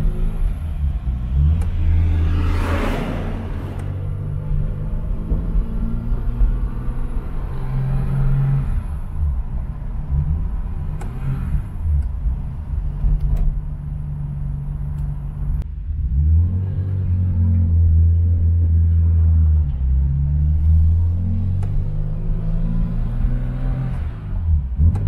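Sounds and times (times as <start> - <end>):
car engine heard from cabin: 0.0 - 15.8.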